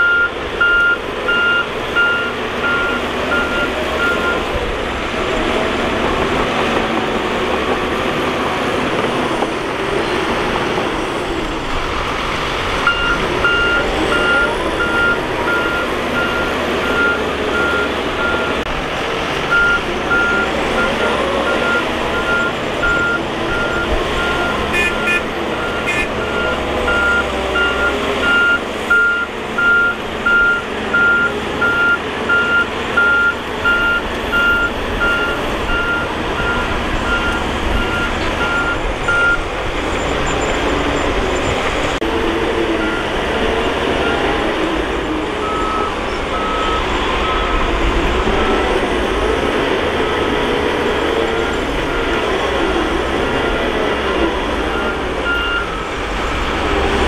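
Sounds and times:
reversing alarm beeping: 0:00.0 - 0:04.5, 0:12.8 - 0:18.6, 0:19.5 - 0:39.4, 0:42.8 - 0:43.2, 0:45.4 - 0:47.6, 0:54.6 - 0:56.0
diesel engine running: 0:00.0 - 0:57.0.

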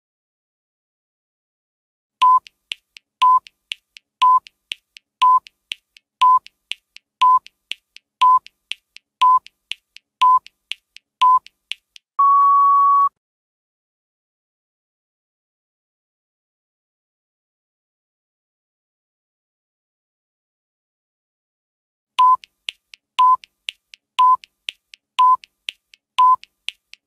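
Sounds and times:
short electronic beeps: 0:02.2 - 0:02.5, 0:03.2 - 0:03.5, 0:04.2 - 0:04.5, 0:05.2 - 0:05.5, 0:06.2 - 0:06.5, 0:07.2 - 0:07.5, 0:08.2 - 0:08.5, 0:09.2 - 0:09.5, 0:10.2 - 0:10.5, 0:11.2 - 0:11.5, 0:12.2 - 0:13.2, 0:22.2 - 0:22.4, 0:23.2 - 0:23.4, 0:24.2 - 0:24.4, 0:25.2 - 0:25.4, 0:26.2 - 0:26.5
faint ticks: 0:02.2 - 0:12.1, 0:22.2 - 0:27.0
long higher beep: 0:12.2 - 0:13.1.

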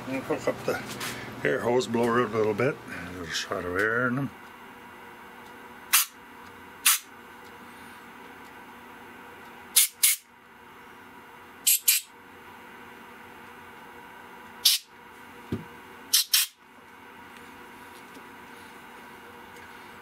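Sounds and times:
compressed air blasts hissing: 0:09.8 - 0:10.2, 0:11.7 - 0:12.1, 0:16.1 - 0:16.6.

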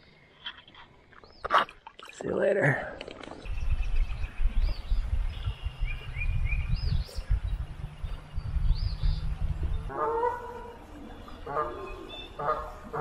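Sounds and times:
birds chirping: 0:00.0 - 0:13.0
wind rumble on microphone: 0:03.4 - 0:13.0.

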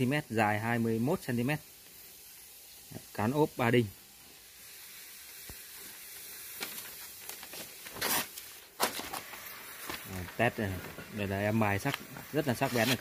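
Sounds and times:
steady hiss: 0:00.0 - 0:13.0
paper rustle: 0:06.6 - 0:11.2, 0:11.8 - 0:13.0
knife rasp on stone table: 0:12.6 - 0:13.0.

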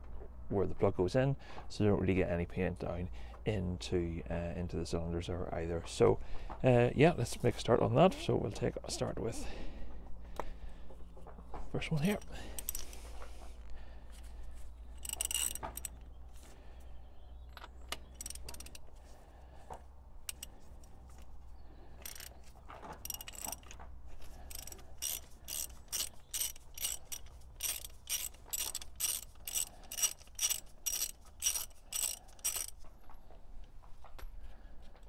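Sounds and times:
ratchet wrench clicking: 0:12.0 - 0:13.1, 0:15.0 - 0:16.0, 0:17.5 - 0:18.8, 0:20.3 - 0:20.5, 0:22.0 - 0:22.3, 0:23.0 - 0:32.8.

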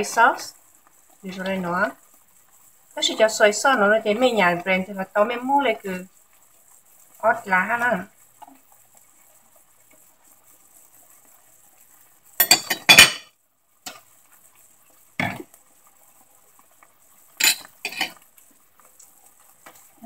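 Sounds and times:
metal spoon clinking on pan: 0:12.4 - 0:13.3, 0:17.4 - 0:18.2.

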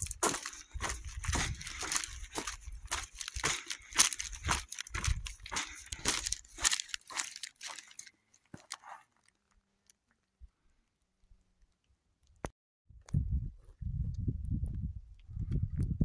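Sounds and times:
footsteps on gravel: 0:00.0 - 0:09.1.

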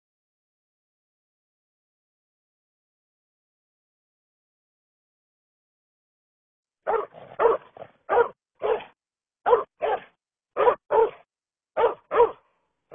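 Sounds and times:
dog barking: 0:06.8 - 0:12.5.

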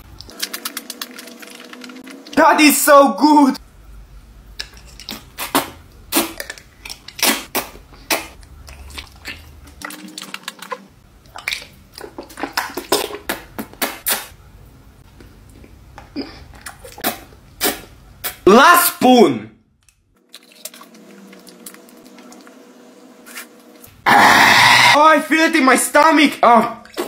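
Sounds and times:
person slurping noodles: 0:24.1 - 0:25.0.

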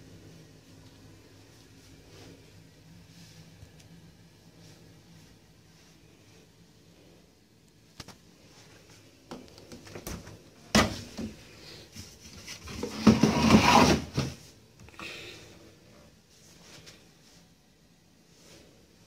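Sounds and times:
rustling and knocking: 0:09.3 - 0:14.4.

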